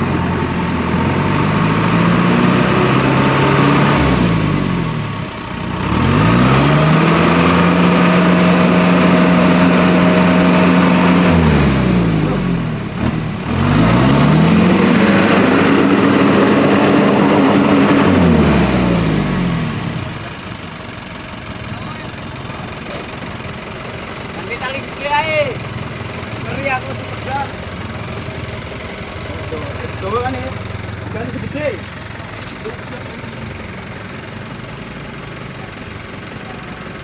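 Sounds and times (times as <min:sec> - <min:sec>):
vehicle engine revving hard: 0:00.0 - 0:20.3.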